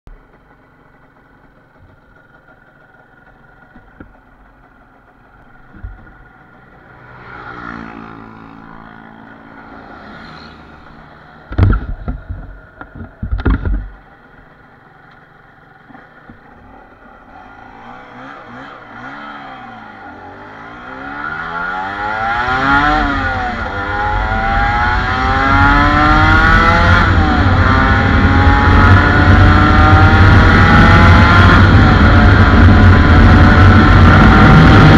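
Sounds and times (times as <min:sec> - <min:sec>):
motorcycle engine accelerating: 0:00.1 - 0:34.9
loud thumps: 0:11.4 - 0:14.0.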